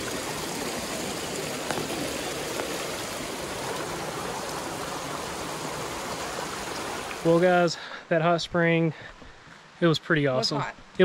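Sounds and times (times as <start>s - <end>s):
water running over stones: 0.0s - 7.8s.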